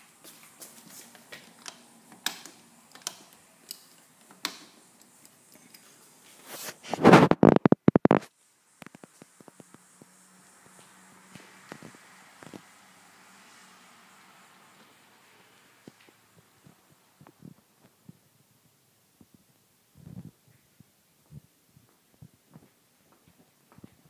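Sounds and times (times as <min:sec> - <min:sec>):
light footsteps: 0:00.0 - 0:01.9, 0:08.9 - 0:12.7, 0:21.2 - 0:24.0
hand rubbing phone microphone: 0:05.8 - 0:10.1.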